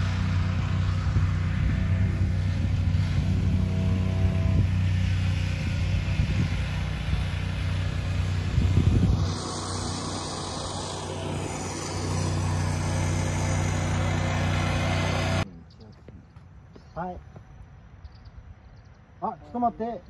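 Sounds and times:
engine humming: 0:00.0 - 0:15.5.

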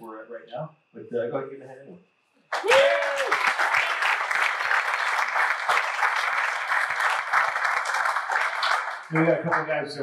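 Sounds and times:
crowd clapping: 0:02.5 - 0:10.0
person whooping: 0:02.6 - 0:03.6.

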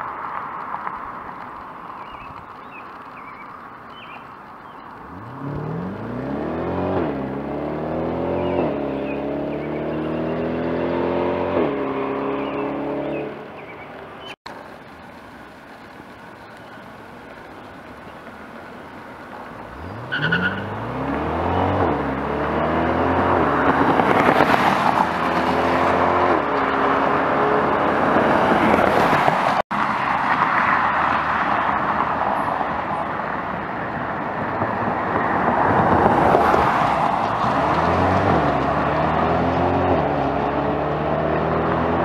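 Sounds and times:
car engine accelerating through gears: 0:05.0 - 0:13.7, 0:19.7 - 0:29.6, 0:34.6 - 0:42.0.

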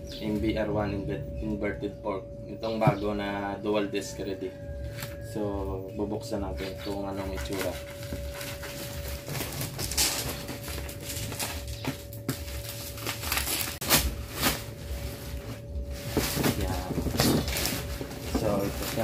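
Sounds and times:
plastic wrapping crinkling and tearing: 0:07.5 - 0:19.0.

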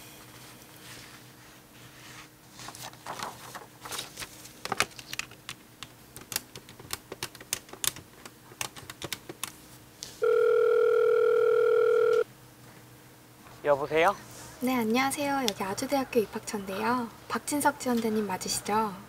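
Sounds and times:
telephone ringing tone: 0:10.2 - 0:12.3.

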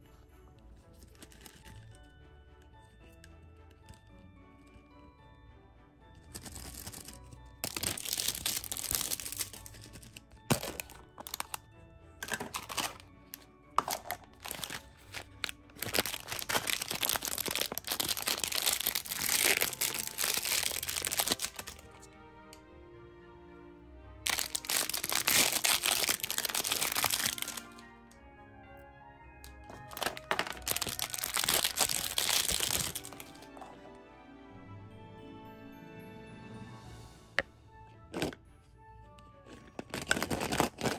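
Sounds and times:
soft background music: 0:00.0 - 0:40.9
plastic wrapper crinkling: 0:00.9 - 0:02.1, 0:06.3 - 0:22.0, 0:24.2 - 0:27.8, 0:29.6 - 0:33.7, 0:39.5 - 0:40.9.

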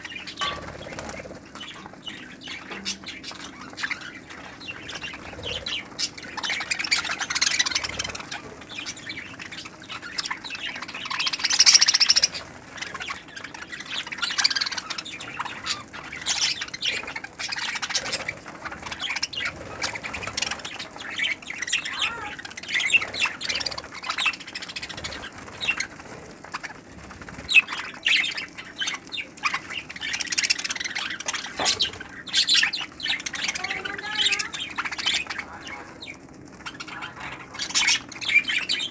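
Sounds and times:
budgerigars chattering: 0:00.0 - 0:38.9.

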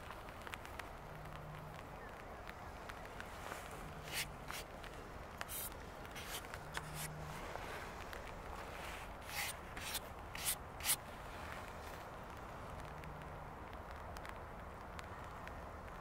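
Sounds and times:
scratchy rubbing sounds: 0:03.8 - 0:04.7, 0:05.4 - 0:07.9, 0:08.5 - 0:11.0.

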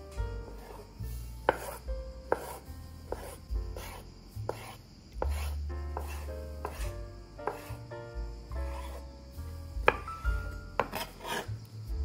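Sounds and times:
knife knocking on cutting board: 0:09.8 - 0:10.1.

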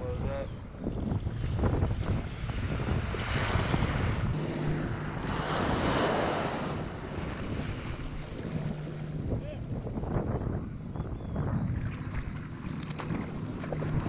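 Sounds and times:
wind buffeting microphone: 0:00.0 - 0:14.0
small waves breaking on beach: 0:03.0 - 0:09.9.

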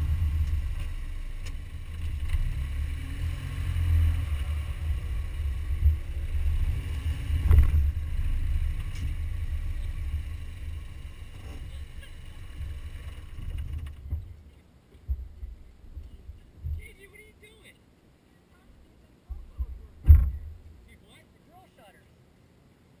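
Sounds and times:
wind buffeting: 0:00.0 - 0:14.5
road noise rumble: 0:00.0 - 0:23.0
thump: 0:19.6 - 0:20.6.

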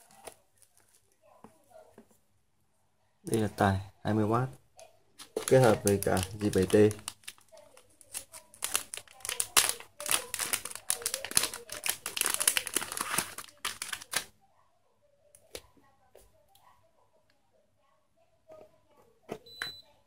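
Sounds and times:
plastic bag crinkling: 0:05.2 - 0:14.3.

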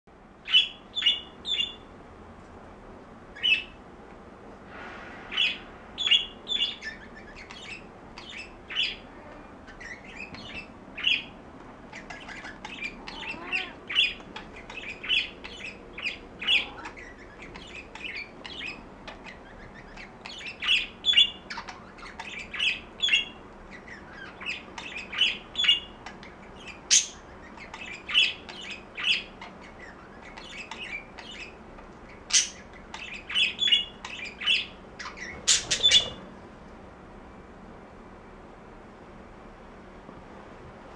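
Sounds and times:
budgerigar chirping and squawking: 0:05.4 - 0:09.0, 0:09.6 - 0:36.3.

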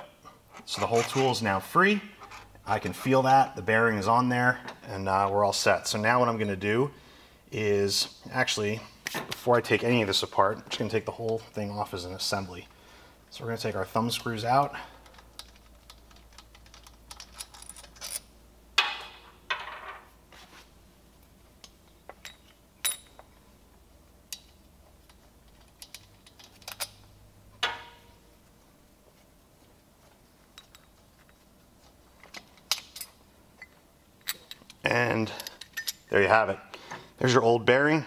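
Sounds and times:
light metallic clicks and clinks: 0:21.6 - 0:23.4, 0:24.3 - 0:28.1, 0:30.5 - 0:31.4, 0:32.2 - 0:36.1.

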